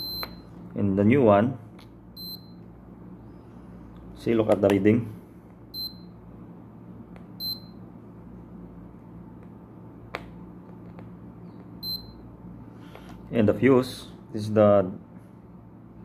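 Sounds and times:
multimeter beeps: 0.0 - 0.6, 2.2 - 2.7, 5.7 - 6.2, 7.4 - 7.8, 11.8 - 12.2.

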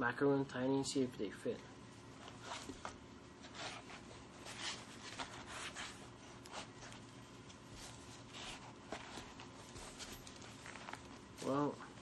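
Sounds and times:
notebook rubbing against fabric bag: 2.1 - 10.0.

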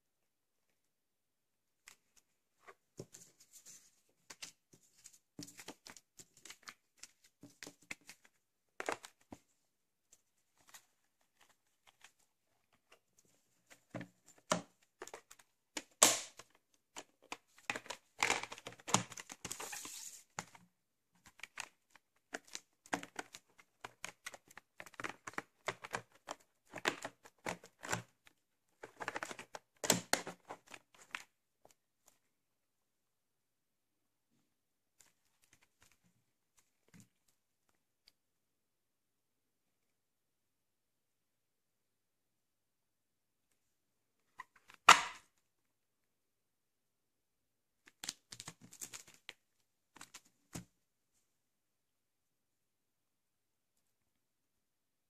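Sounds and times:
cardboard rustling: 17.0 - 20.6.

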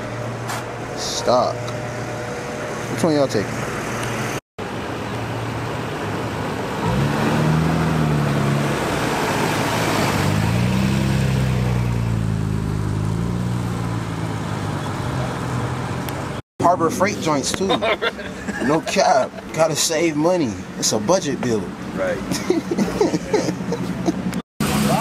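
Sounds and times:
car engine passing slowly: 0.1 - 16.4.

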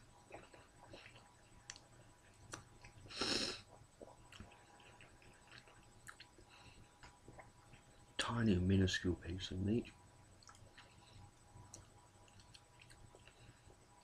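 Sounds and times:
chewing and wet mouth clicks: 0.3 - 7.9, 10.4 - 13.8
short breathy hiss: 3.1 - 3.6.

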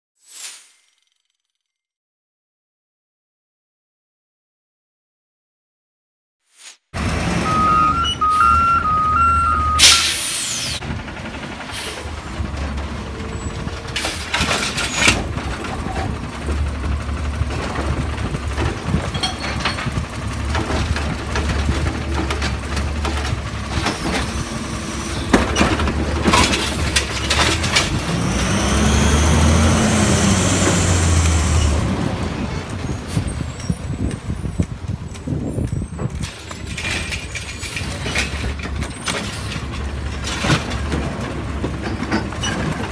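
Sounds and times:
diesel engine: 7.0 - 42.9
two-tone beeping alarm: 7.4 - 10.2
loud hiss of air: 9.8 - 10.8.

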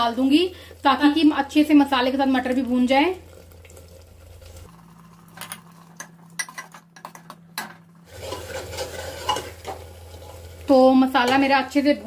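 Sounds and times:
masala sizzling: 0.0 - 12.0
spoon scraping and knocking pot: 6.0 - 10.4.

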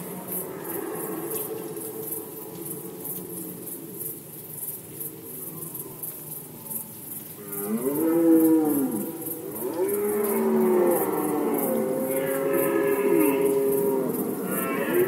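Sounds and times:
deer stags roaring: 7.5 - 15.0.

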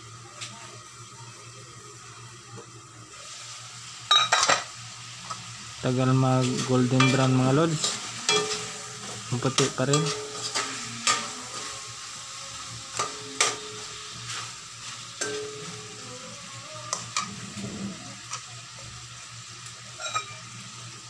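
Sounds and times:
chicken wings sizzling in oil: 0.0 - 21.0
metal spatula scraping pan: 9.9 - 11.8.

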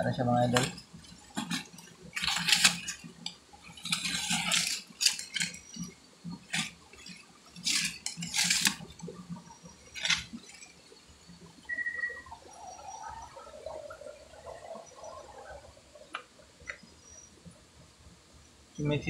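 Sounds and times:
dry leaves rustling and crunching: 0.6 - 9.2, 9.9 - 10.8.

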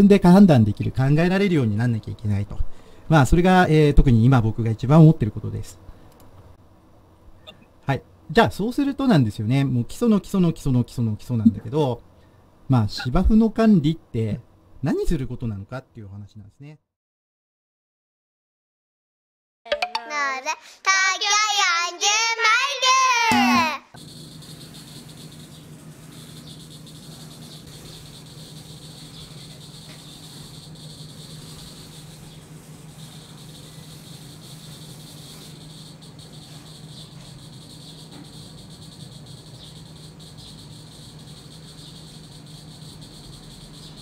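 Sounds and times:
low steady hum: 0.0 - 15.7
insects chirring: 24.0 - 44.0.

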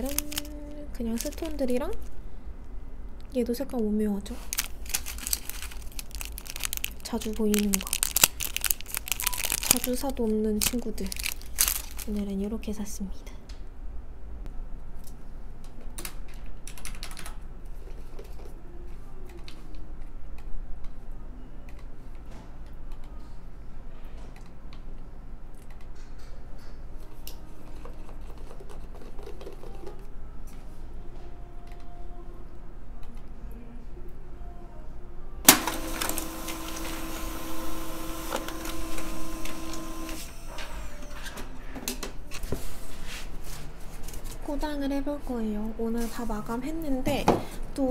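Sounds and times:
paper rustling: 0.0 - 2.0, 4.3 - 12.3
paper handling clicks: 0.0 - 2.1, 4.4 - 12.3, 35.5 - 40.2
printer motor whirring and clicking: 35.5 - 40.9.

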